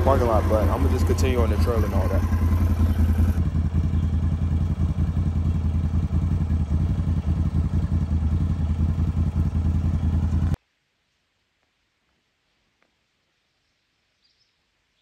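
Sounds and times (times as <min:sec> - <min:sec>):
atv engine idling: 0:00.0 - 0:10.6.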